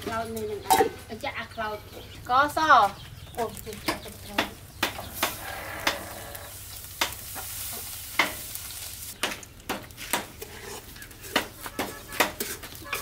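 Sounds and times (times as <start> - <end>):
ladle scraping and knocking pot: 10.0 - 13.0.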